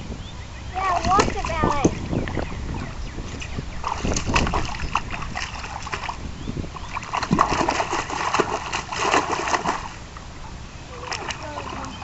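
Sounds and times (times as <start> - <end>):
splashing through a puddle: 0.8 - 2.4, 3.8 - 6.2, 6.9 - 10.0, 10.9 - 12.0.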